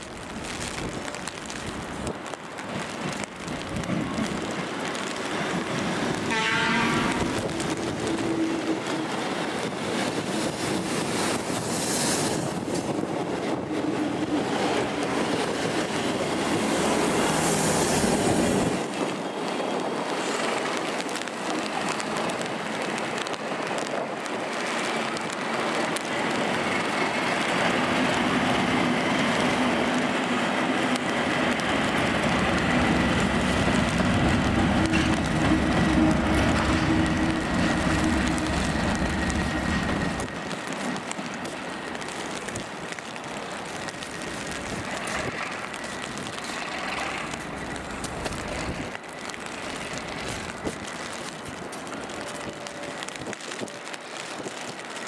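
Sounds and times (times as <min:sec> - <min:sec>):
diesel trains running: 0:00.0 - 0:54.2
diesel locomotive engine: 0:00.0 - 0:54.6.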